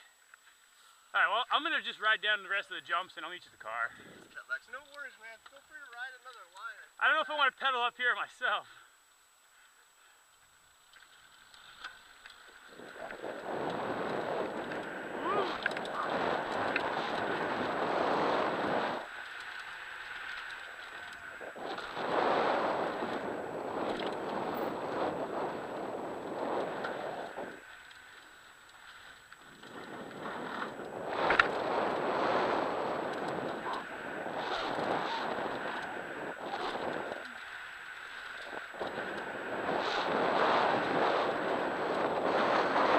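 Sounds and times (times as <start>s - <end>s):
bike tyres on dirt trail: 8.3s - 42.9s
wind on microphone: 12.5s - 19.1s, 20.8s - 27.7s, 29.6s - 37.4s, 38.1s - 42.9s.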